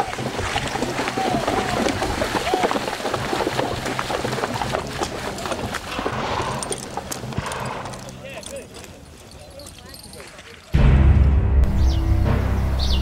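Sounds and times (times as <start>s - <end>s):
hooves squelching through mud: 0.0s - 10.8s
music: 10.8s - 13.0s.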